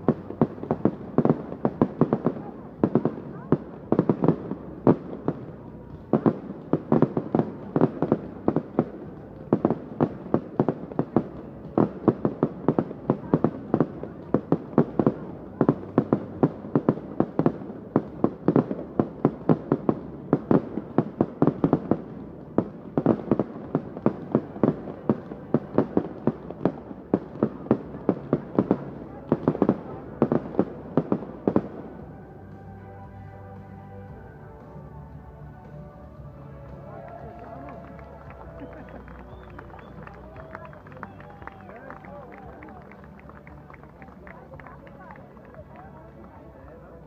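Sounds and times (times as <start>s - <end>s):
fireworks bangs and cracks: 0.0s - 47.0s.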